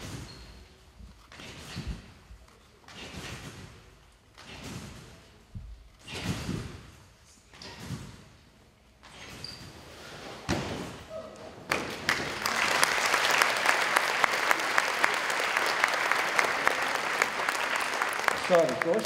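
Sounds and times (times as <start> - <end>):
audience applause: 11.7 - 19.0.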